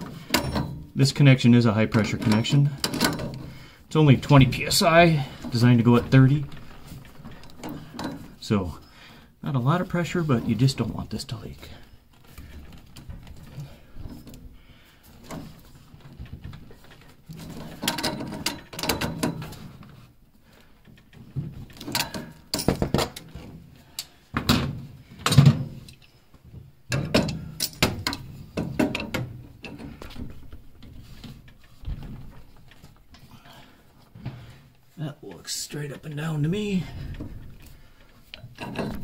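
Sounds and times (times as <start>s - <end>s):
wrench clanking on metal valve: 0.2s - 0.9s, 1.9s - 3.5s.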